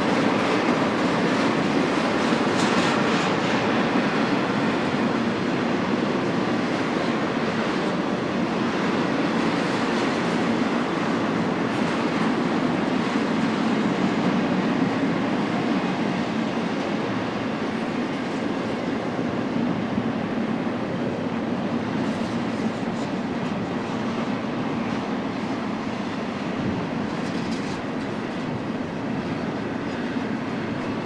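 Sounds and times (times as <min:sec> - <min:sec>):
freight train wheels on rail: 0:00.0 - 0:31.0.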